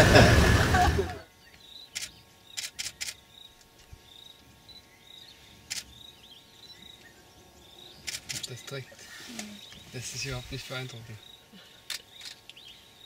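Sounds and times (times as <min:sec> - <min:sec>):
faint high-pitched chirping: 0:01.3 - 0:13.0
sharp clicks: 0:01.9 - 0:03.9, 0:05.7 - 0:06.0, 0:08.0 - 0:08.8, 0:11.9 - 0:12.6.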